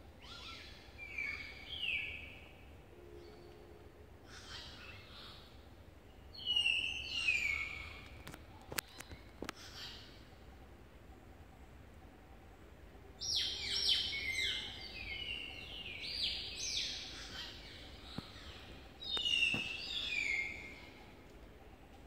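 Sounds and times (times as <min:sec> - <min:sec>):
birds whistling falling notes: 0:19.0 - 0:20.7.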